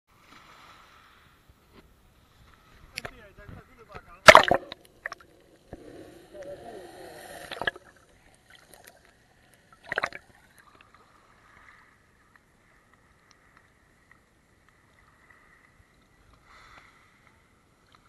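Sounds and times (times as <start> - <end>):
water splashing: 4.1 - 11.9.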